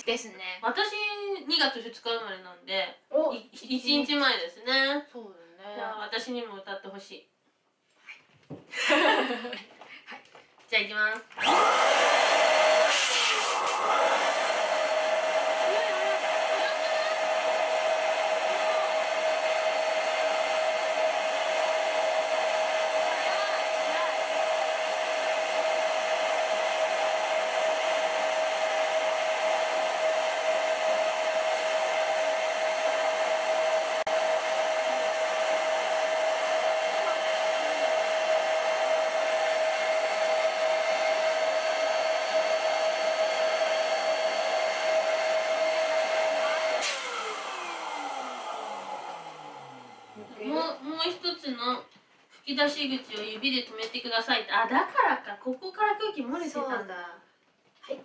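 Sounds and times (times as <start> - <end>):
electric air pump humming: 11.4 - 50.6.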